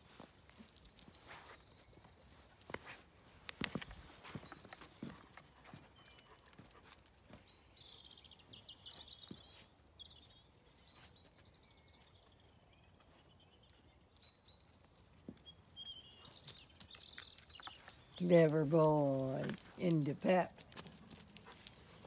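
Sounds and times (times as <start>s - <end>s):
faint birdsong chirping: 0.0s - 22.0s.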